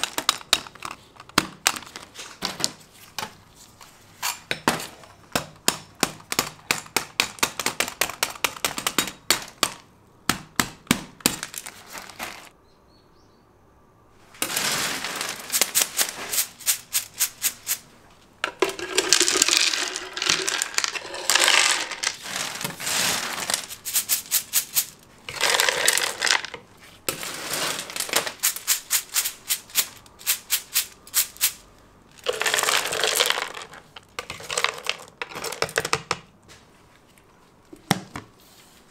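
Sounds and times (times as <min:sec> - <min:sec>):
hard candy clicking and rattling: 0:00.0 - 0:02.0, 0:06.0 - 0:09.8, 0:14.4 - 0:17.8, 0:18.5 - 0:26.6, 0:27.7 - 0:36.2.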